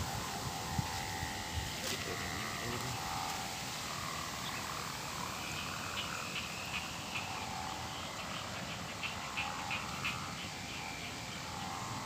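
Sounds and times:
outdoor hiss: 0:00.0 - 0:08.4
frogs chirping: 0:00.0 - 0:12.0.

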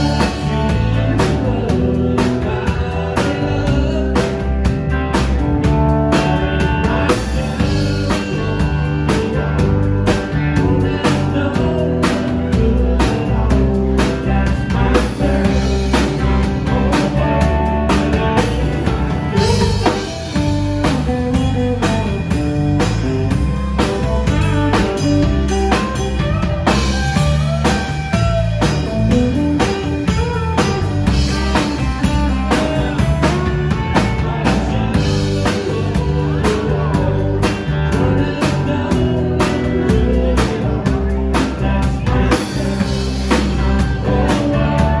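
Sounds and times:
live country band playing: 0:00.0 - 0:45.0.

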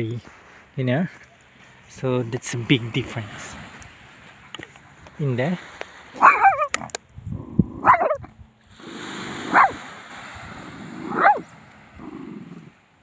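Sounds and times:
dog yelping high cries: 0:06.2 - 0:06.9, 0:07.8 - 0:08.3, 0:09.5 - 0:09.8, 0:11.1 - 0:11.4
small dog whining: 0:06.2 - 0:06.9.

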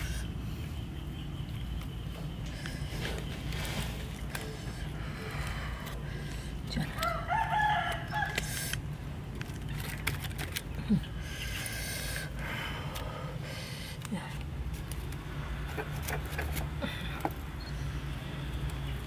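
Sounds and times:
rooster crowing: 0:07.0 - 0:08.5.

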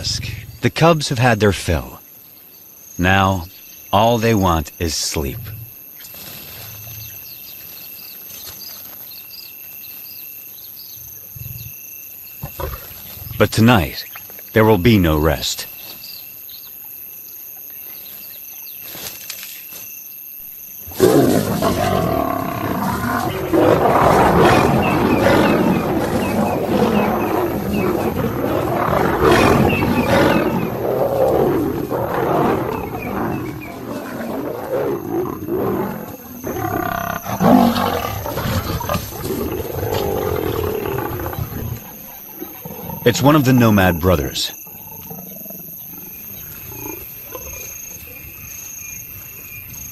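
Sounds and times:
night insects chirring: 0:00.0 - 0:49.9
lions snarling and growling: 0:11.2 - 0:11.8, 0:12.4 - 0:14.0, 0:20.8 - 0:47.8.

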